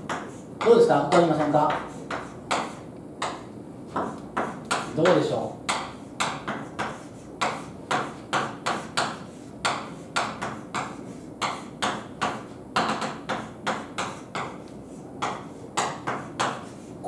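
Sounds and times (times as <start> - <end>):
chalk tapping and scraping on blackboard: 0.0 - 17.0.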